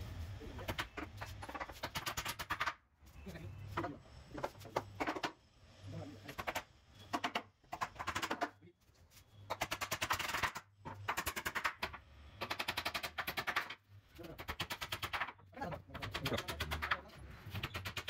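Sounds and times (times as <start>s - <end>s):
hammer striking nails into wood: 4.4s - 5.4s, 6.3s - 8.5s, 9.5s - 13.8s, 14.4s - 18.0s.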